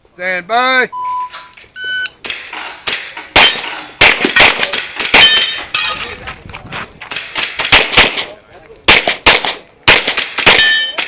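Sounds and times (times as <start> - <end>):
shot timer beep: 0.9 - 2.2
pistol shots: 2.2 - 5.7, 7.1 - 11.0.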